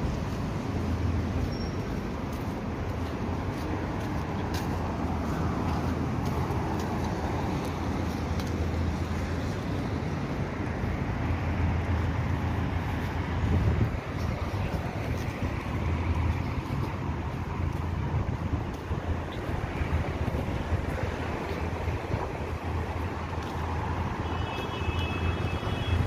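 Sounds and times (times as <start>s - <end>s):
low street rumble: 0.0s - 26.0s
light ticks: 6.2s - 8.7s.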